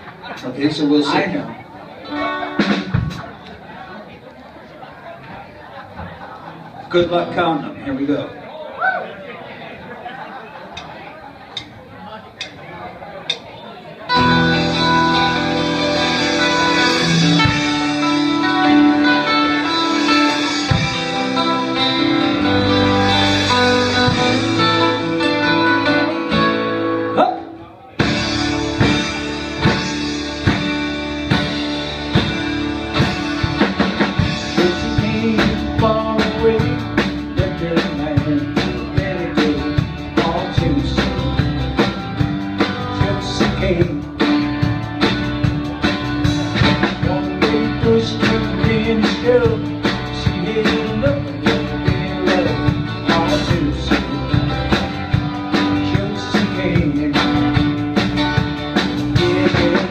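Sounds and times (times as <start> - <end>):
bass guitar: 0.0 - 4.0, 13.3 - 59.9
electric and acoustic guitars: 0.0 - 9.2, 13.9 - 59.9
drum kit beat: 2.3 - 3.4, 14.1 - 26.9, 28.0 - 59.9
man singing: 34.2 - 41.9, 42.6 - 44.6, 46.6 - 54.8, 55.5 - 57.8, 59.0 - 59.9.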